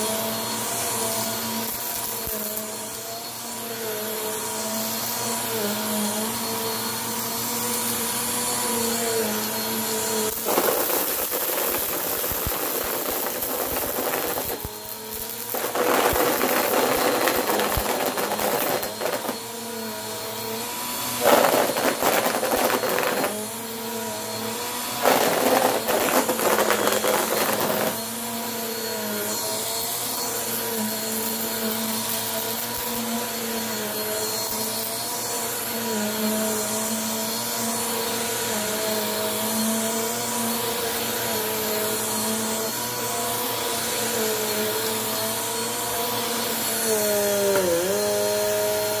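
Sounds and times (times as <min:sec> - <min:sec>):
vacuum cleaner motor hum: 0:00.0 - 0:49.0
debris rattling in vacuum: 0:10.4 - 0:19.4, 0:21.1 - 0:23.5, 0:24.9 - 0:28.0.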